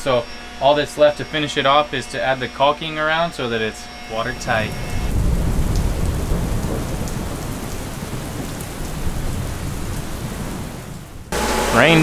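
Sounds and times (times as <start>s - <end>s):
low rumble of thunder: 5.1s - 11.3s
heavy rain on a driveway: 5.1s - 12.0s.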